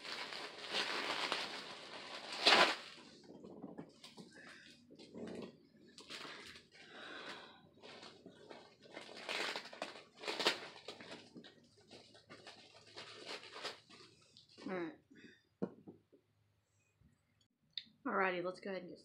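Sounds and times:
packing paper rustling: 0.0s - 3.3s, 6.0s - 14.6s.

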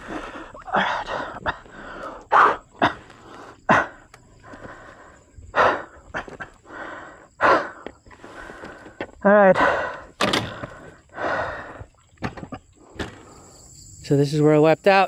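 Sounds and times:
person panting hard: 0.0s - 11.9s.

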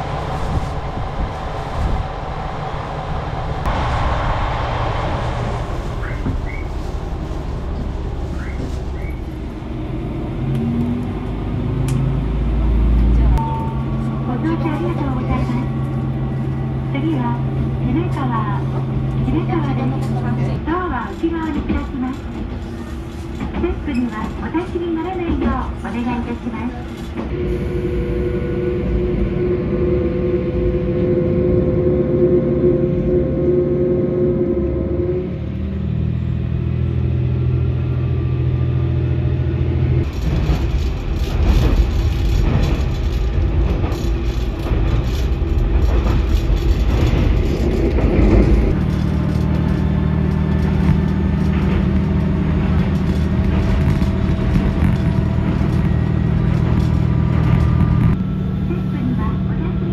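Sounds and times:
diesel railcar engine drone: 0.0s - 59.9s
wheel and rail noise: 35.5s - 59.3s.

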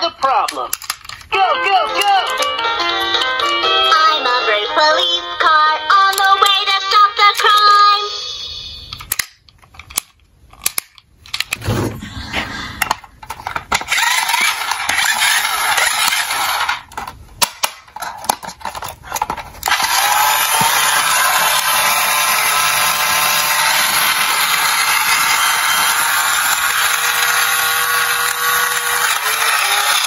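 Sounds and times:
toy cars clicking in a box: 0.5s - 1.3s, 12.9s - 30.0s
toy truck whirring hiss: 13.8s - 16.8s, 19.2s - 30.0s.

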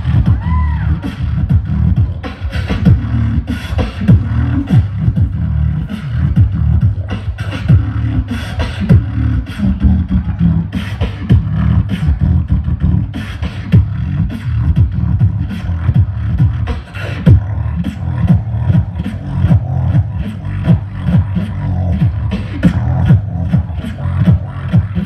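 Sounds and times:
amplified beatboxing: 0.0s - 25.0s.

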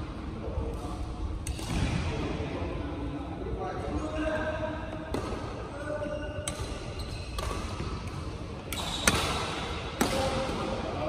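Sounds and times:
rackets hitting shuttlecock: 5.1s - 5.5s, 6.4s - 10.8s.

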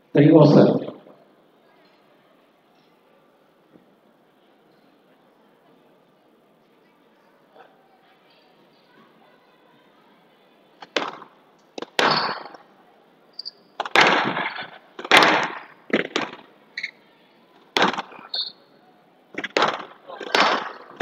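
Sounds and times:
squash ball cracking off walls: 10.8s - 12.6s, 13.8s - 16.5s, 17.7s - 18.3s, 19.4s - 21.0s
court shoes squeaking: 11.8s - 12.6s, 13.3s - 17.0s, 18.0s - 18.7s.

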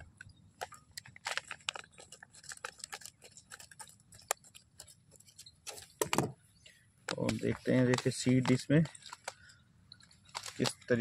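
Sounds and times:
scissors snipping plastic packet: 0.6s - 4.9s, 7.1s - 9.5s, 10.2s - 11.0s.

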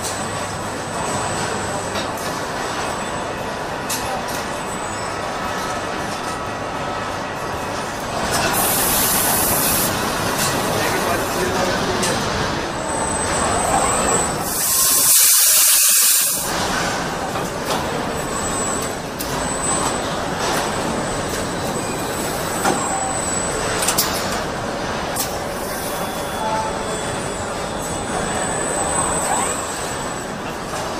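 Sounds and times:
assembly line machinery running: 0.0s - 30.9s
loud compressed air hiss: 8.5s - 9.9s, 14.4s - 16.5s.

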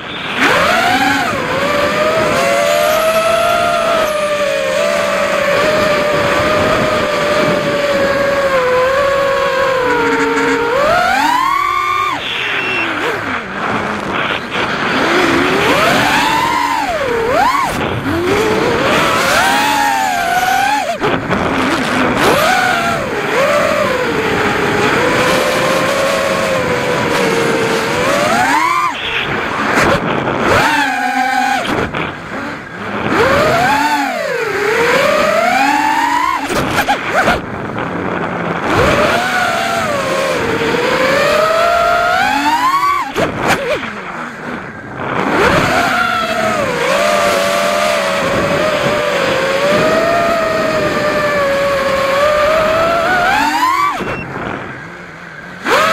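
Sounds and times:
quadcopter motor whine: 0.0s - 55.9s.

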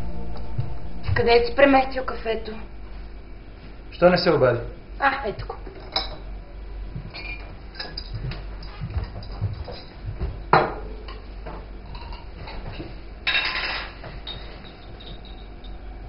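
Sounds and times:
dishes and utensils clinking: 5.7s - 6.3s, 7.1s - 15.9s.

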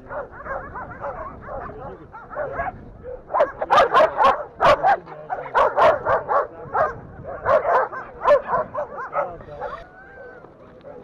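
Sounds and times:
dogs barking and yelping: 0.0s - 11.0s.

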